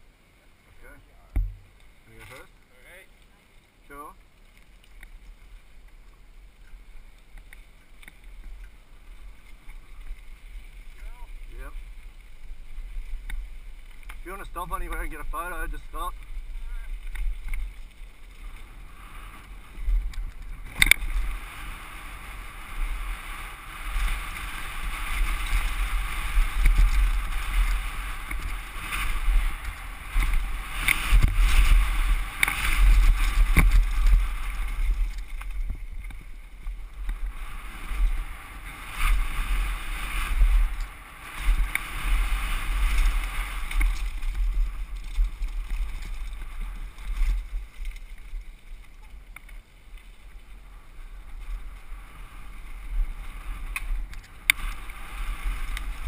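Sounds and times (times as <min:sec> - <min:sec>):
tyres rattling over dirt trail: 0:00.6 - 0:56.0
sharp knocks from bumps: 0:01.4 - 0:01.7
wind buffeting camera: 0:04.7 - 0:56.0.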